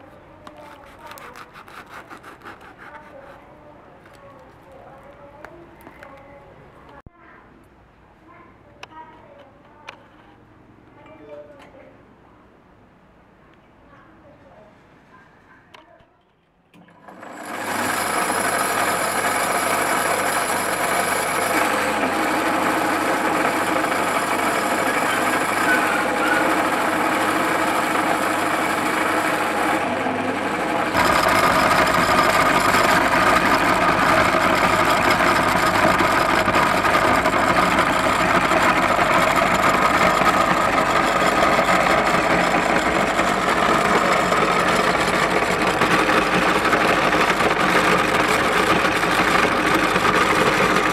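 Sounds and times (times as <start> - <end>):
meat grinder motor humming: 16.8 - 50.9.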